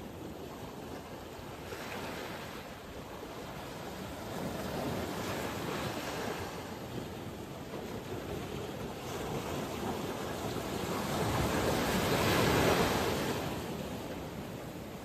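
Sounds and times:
sea surf rushing: 1.0s - 15.0s
wind buffeting microphone: 2.1s - 15.0s.

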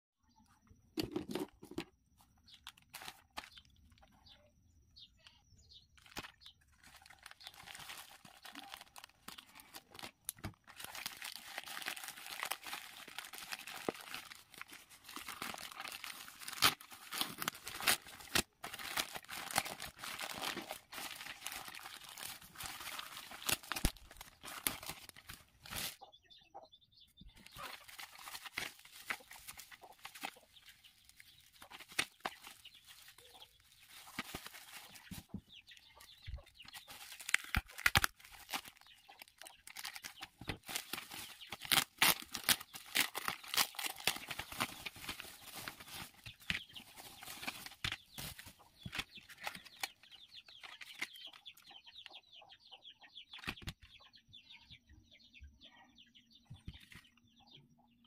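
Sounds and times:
bubble wrap rustling: 2.5s - 4.1s, 6.0s - 26.0s, 27.4s - 51.1s
plastic crinkling and tearing: 2.6s - 4.1s, 6.0s - 26.0s, 27.4s - 35.4s, 36.4s - 51.2s.

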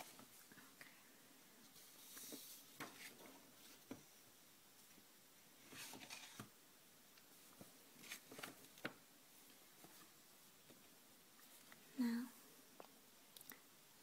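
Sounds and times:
paper rustling: 5.6s - 6.6s, 8.0s - 9.0s.

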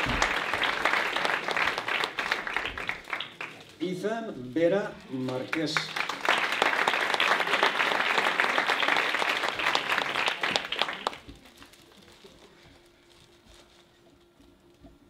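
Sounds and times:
audience applauding: 0.0s - 3.8s, 5.0s - 11.6s.

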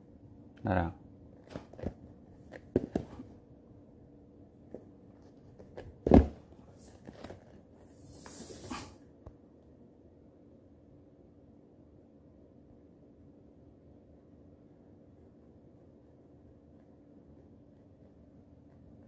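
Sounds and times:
rustling hiss: 7.8s - 9.0s.

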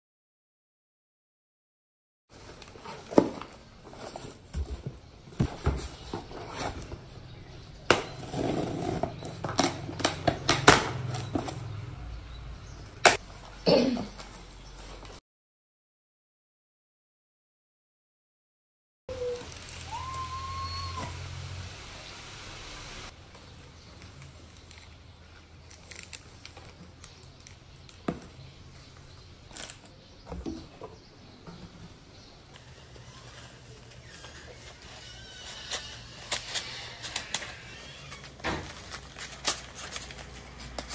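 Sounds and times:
cardboard rustling: 2.3s - 7.3s, 38.3s - 40.9s
steady hiss: 19.4s - 23.1s.

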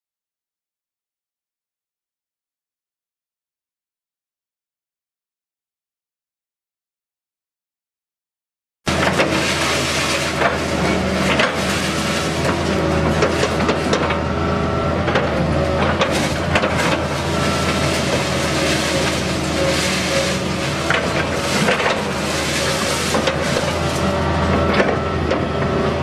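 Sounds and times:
diesel engine running: 8.9s - 26.0s
concrete cracking and crunching: 15.9s - 24.1s.

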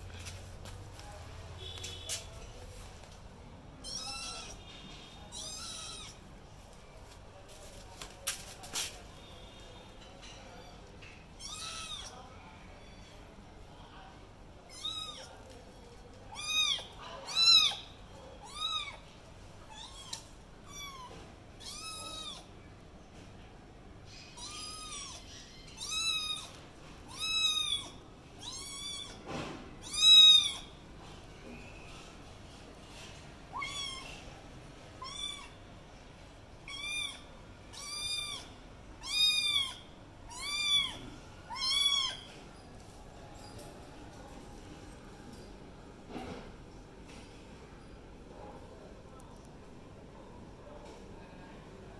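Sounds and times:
kitten meowing: 3.8s - 4.6s, 5.3s - 6.2s, 11.4s - 12.1s, 14.7s - 15.3s, 16.3s - 17.8s, 18.4s - 19.0s, 19.7s - 22.5s, 24.4s - 25.2s, 25.8s - 26.5s, 27.1s - 29.2s, 29.8s - 30.7s, 33.5s - 34.2s, 35.0s - 35.5s, 36.7s - 42.2s.

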